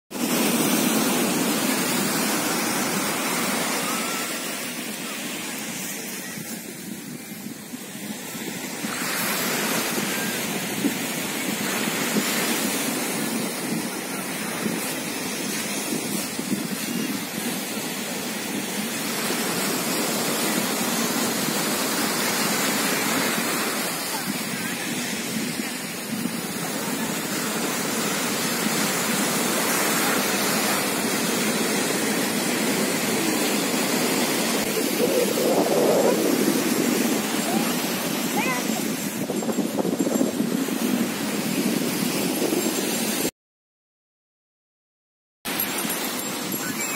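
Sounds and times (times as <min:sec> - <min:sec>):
waves breaking on beach: 0:00.1 - 0:43.3, 0:45.5 - 0:46.9
wind buffeting microphone: 0:05.8 - 0:43.3.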